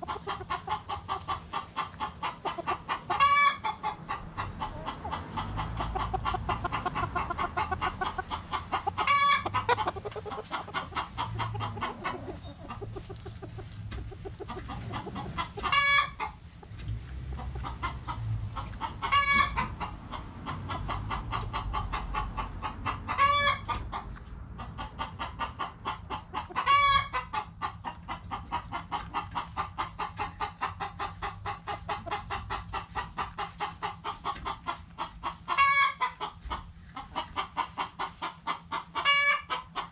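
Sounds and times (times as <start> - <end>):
chickens clucking: 0.0 - 39.9.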